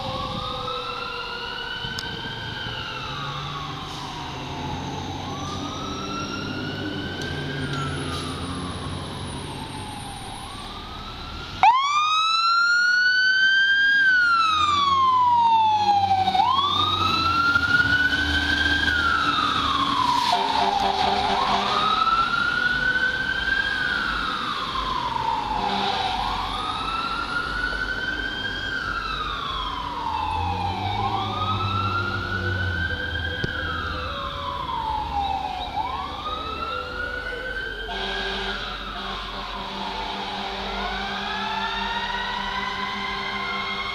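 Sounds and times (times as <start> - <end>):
fire engine siren wailing: 0.0 - 43.9
air horn tone: 20.3 - 21.9, 37.9 - 40.8.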